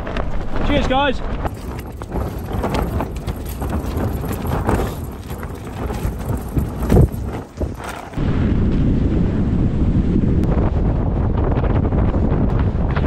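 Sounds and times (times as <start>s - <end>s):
wind buffeting microphone: 0.0s - 13.0s
tent fabric rustling: 1.5s - 8.2s.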